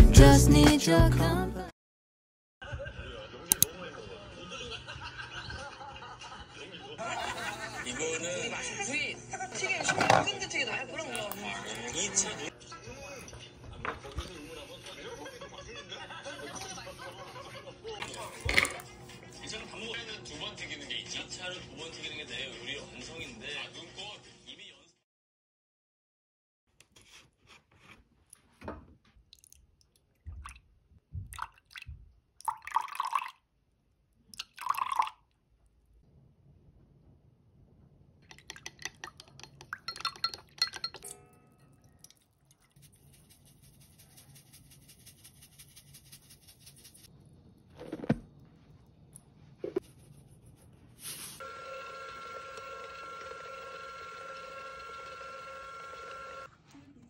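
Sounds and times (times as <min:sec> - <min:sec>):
liquid splashing into a glass: 0:31.3 - 0:33.4, 0:34.3 - 0:35.2
containers knocking and clicking: 0:38.2 - 0:41.0
mixer switching on: 0:51.4 - 0:56.5
stand mixer motor whine: 0:51.4 - 0:56.5.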